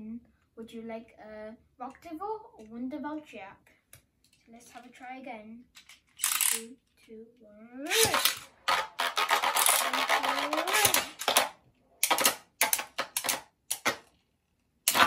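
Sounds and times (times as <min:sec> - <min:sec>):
spinning tops clattering: 0:07.9 - 0:14.0.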